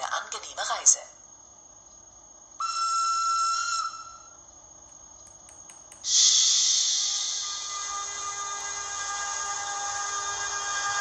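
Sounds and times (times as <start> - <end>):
high train whistle: 2.6 - 4.3, 6.1 - 11.0
faint clicks: 4.8 - 6.1
loud hiss: 5.9 - 11.0.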